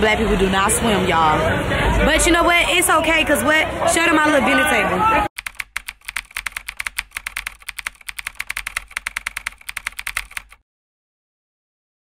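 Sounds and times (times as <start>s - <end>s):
keyboard key clicks: 5.4s - 10.6s.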